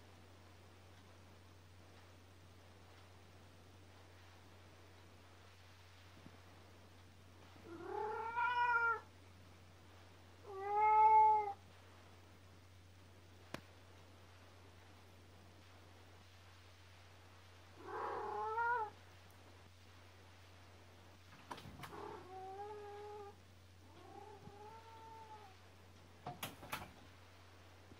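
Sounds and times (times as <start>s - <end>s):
faint low hum: 0.0s - 27.9s
cat meowing: 7.7s - 9.1s, 10.4s - 11.6s, 17.8s - 19.0s, 21.8s - 25.6s.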